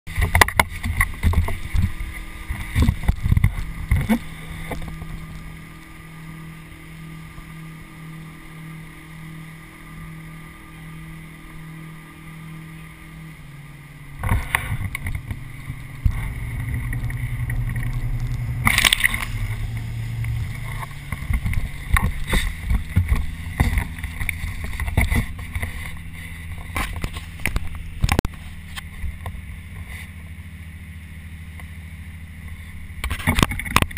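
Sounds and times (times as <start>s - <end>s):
boat engine humming: 0.1s - 33.9s
water splashing against camera housing: 14.2s - 29.4s.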